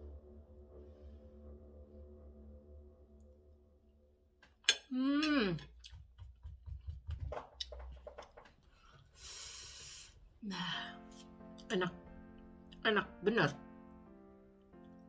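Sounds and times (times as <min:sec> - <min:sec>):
woman's wordless exclamation: 0:04.9 - 0:05.7, 0:11.7 - 0:12.0, 0:12.8 - 0:13.6
hissing breath: 0:08.7 - 0:10.4.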